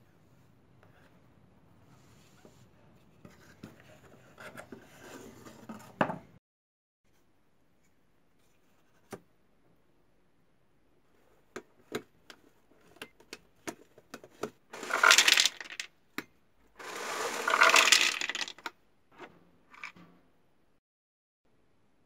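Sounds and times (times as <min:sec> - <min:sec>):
peanuts rattling into plastic tub: 0:14.8 - 0:15.9, 0:16.8 - 0:18.7.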